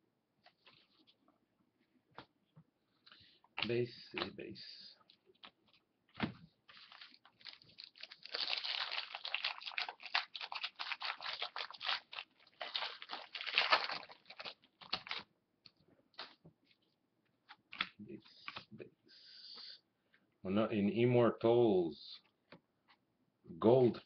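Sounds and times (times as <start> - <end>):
plastic wrapper crinkling: 6.6 - 15.3.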